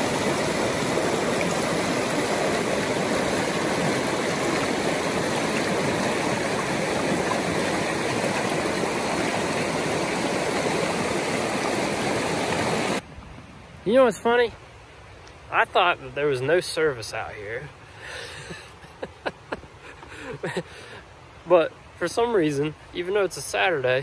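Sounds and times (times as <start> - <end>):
river rushing over rocks: 0.0 - 13.0.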